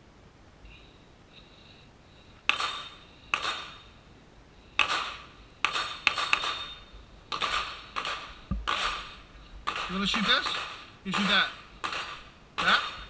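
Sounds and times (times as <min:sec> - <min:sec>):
gunshots with ringing tail: 0:04.8 - 0:13.0.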